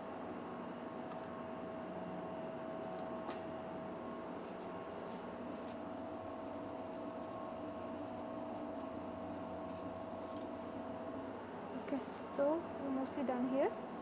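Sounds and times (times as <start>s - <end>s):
lab equipment humming: 0.0s - 14.0s
mid-pitched whine: 0.0s - 14.0s.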